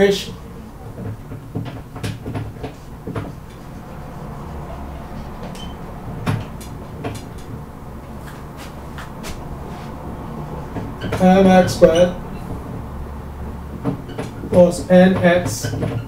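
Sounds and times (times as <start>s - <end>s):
low room hum: 0.0s - 16.0s
marker scraping on whiteboard: 8.1s - 10.0s
marker squeak: 11.0s - 12.5s.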